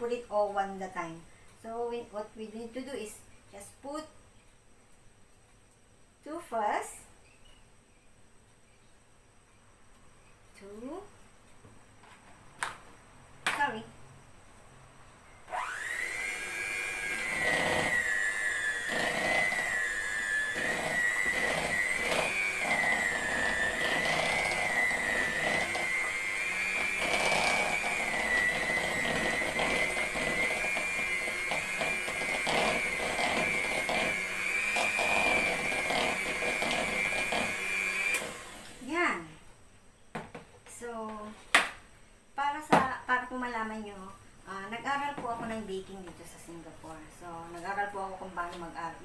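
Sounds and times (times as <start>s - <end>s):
electric mixer motor whining: 15.5s - 38.9s.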